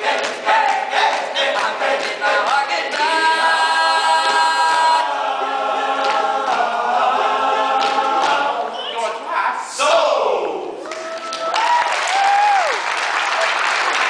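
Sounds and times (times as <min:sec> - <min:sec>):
male group singing in harmony: 0:00.0 - 0:09.2.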